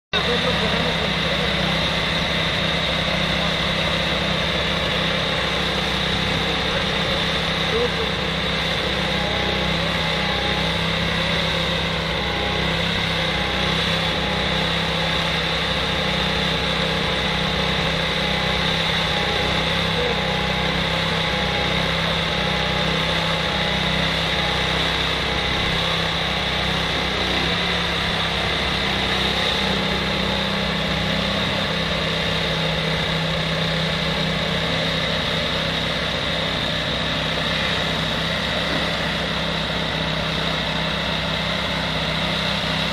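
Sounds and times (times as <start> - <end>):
diesel truck engine idling: 0.1 - 42.9.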